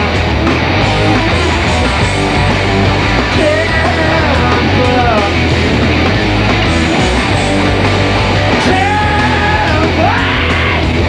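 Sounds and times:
bass guitar: 0.0 - 11.0
distorted electric guitars: 0.0 - 11.0
drums: 0.0 - 11.0
man shouting vocals: 8.6 - 11.0.

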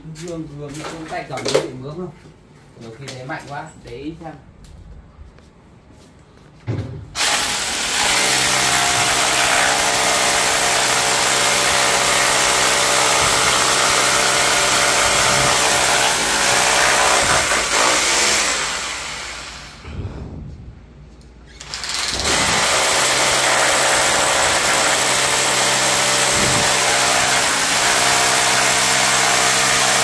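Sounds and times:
electric drill running: 7.2 - 19.8, 21.6 - 30.0.

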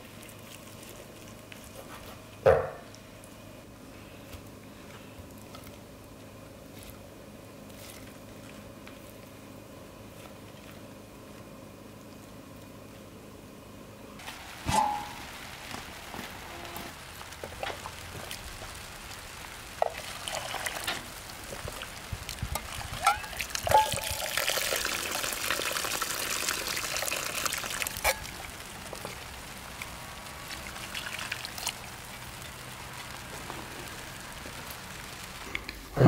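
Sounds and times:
broth pouring and splashing: 0.0 - 1.8, 14.2 - 35.6
metal ladle clinking: 23.0 - 24.3.

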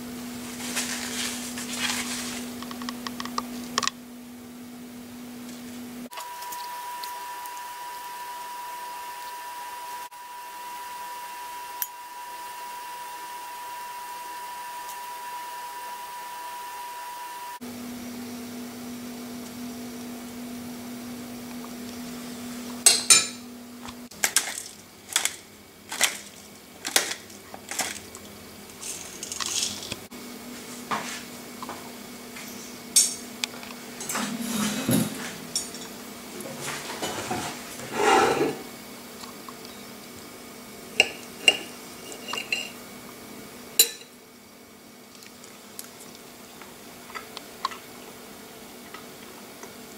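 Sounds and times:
ceramic plate and utensils clinking: 41.0 - 42.8, 43.8 - 44.1.

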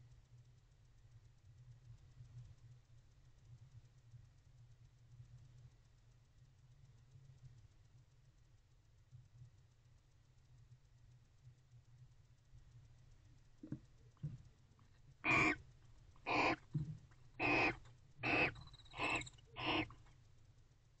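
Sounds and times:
barn owl hissing calls: 15.2 - 15.6, 16.3 - 16.6, 17.4 - 20.0.

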